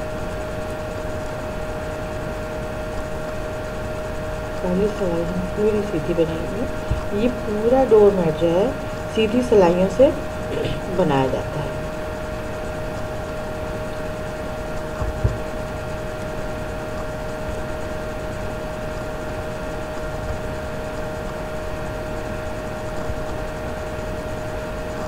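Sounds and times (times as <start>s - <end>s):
steady hum and hiss: 0.0s - 25.0s.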